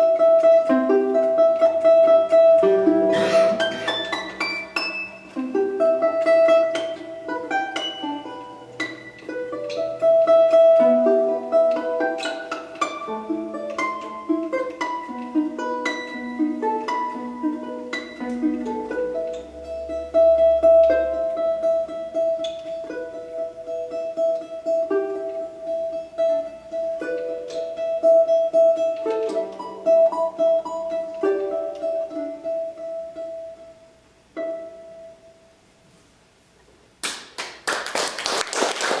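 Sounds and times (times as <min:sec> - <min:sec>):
plucked domra notes: 0:00.0 - 0:35.6
applause: 0:37.0 - 0:39.0.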